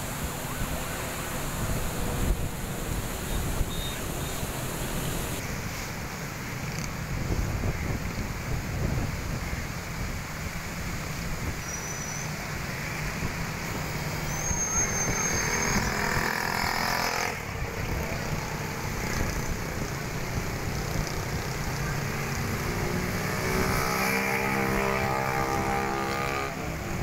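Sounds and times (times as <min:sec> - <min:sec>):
road traffic passing: 0:00.0 - 0:27.0
wind rumbling on microphone: 0:00.0 - 0:27.0
thin high whistle: 0:03.2 - 0:05.4, 0:11.6 - 0:12.4, 0:14.2 - 0:16.2.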